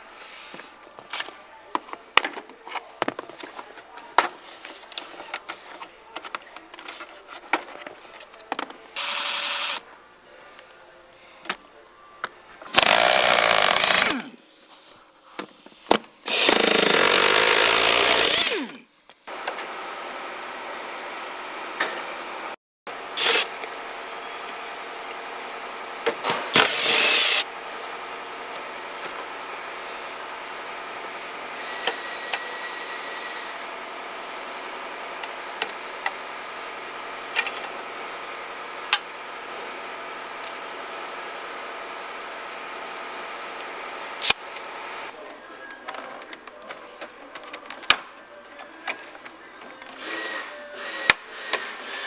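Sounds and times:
cordless drill-driver: 9.0 - 9.8, 12.8 - 14.3, 16.3 - 18.8, 23.2 - 23.5, 26.5 - 27.5
impact wrench: 9.0 - 9.8, 12.8 - 14.5, 15.7 - 19.2, 23.2 - 23.6, 26.2 - 27.5.

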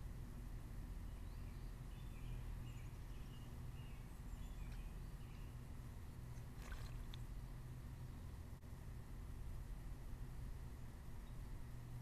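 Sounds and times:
low outdoor rumble: 0.0 - 12.0
small birds chirping: 1.0 - 8.3.

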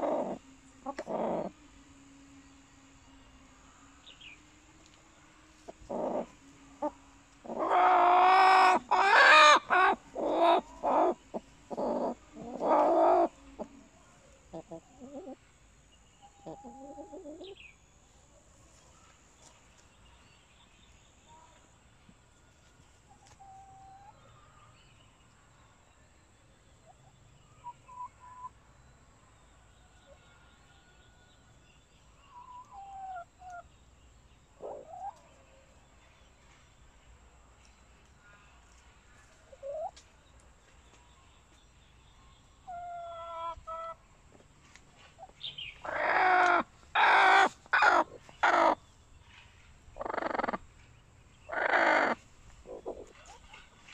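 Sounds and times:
hens calling quietly: 0.0 - 1.8, 3.6 - 15.4, 16.2 - 17.6, 32.3 - 33.7, 38.2 - 40.0, 42.6 - 44.0, 45.1 - 48.9, 49.9 - 50.7, 51.4 - 53.9
hens squawking harshly: 7.4 - 13.3, 45.8 - 48.8, 51.5 - 53.0.

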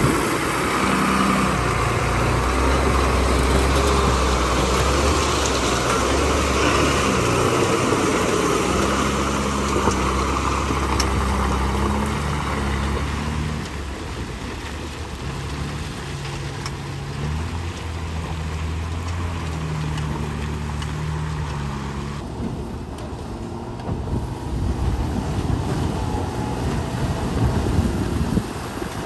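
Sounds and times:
wind buffeting microphone: 0.0 - 11.9, 22.2 - 29.0
diesel truck engine under load: 0.0 - 29.0.

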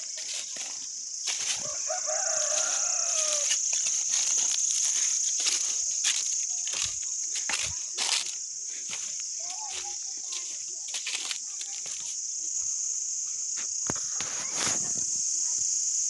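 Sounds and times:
footsteps crunching dry leaves: 0.0 - 12.7
high-pitched insect drone: 0.0 - 16.0.

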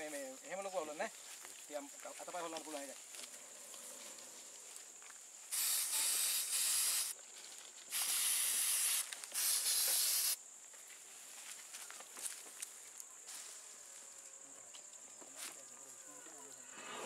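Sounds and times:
aerosol spray hissing: 5.5 - 7.2, 7.9 - 10.4.

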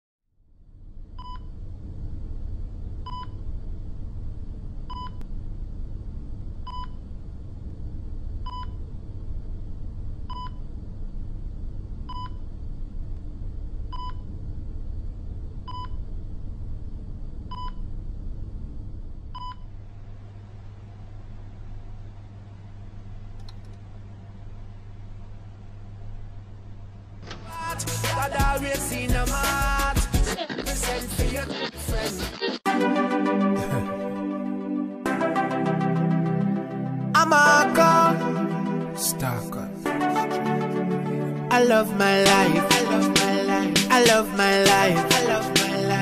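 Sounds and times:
steady low rumble: 0.7 - 28.6.

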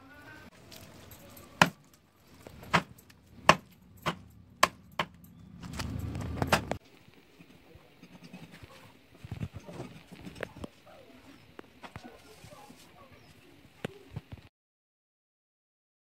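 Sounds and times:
low rumbling noise: 2.1 - 6.8
cleaver chopping on wooden block: 2.7 - 5.2.

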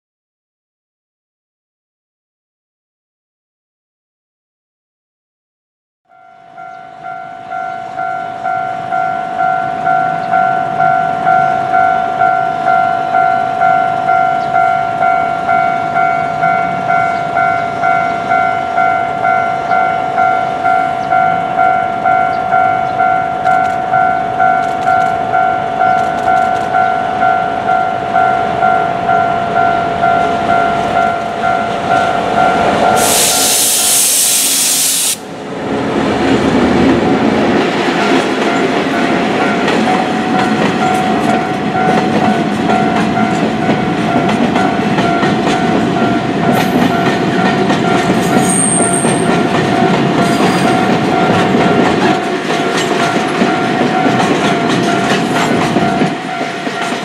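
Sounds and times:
level crossing bell ringing: 6.1 - 33.5
diesel locomotive engine: 6.2 - 57.0
loud rushing hiss: 33.0 - 35.3
rolling train wagons: 35.3 - 57.0.

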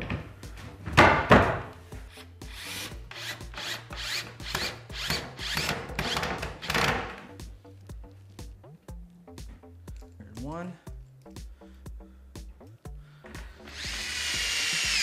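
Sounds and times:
cordless drill into wood: 13.6 - 15.0.

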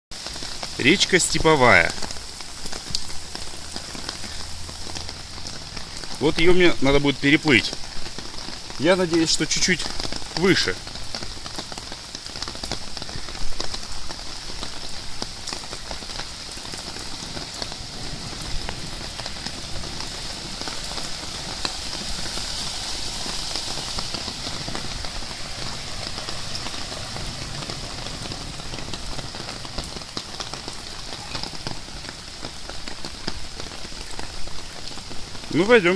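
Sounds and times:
heavy rain on standing water: 0.1 - 35.9
raindrop clicks: 0.7 - 22.3.

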